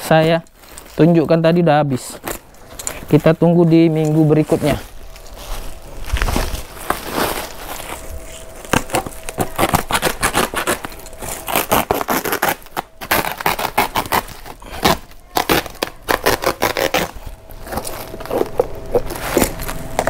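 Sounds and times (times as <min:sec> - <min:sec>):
box cutter ripping plastic sack: 0:06.1 - 0:20.0.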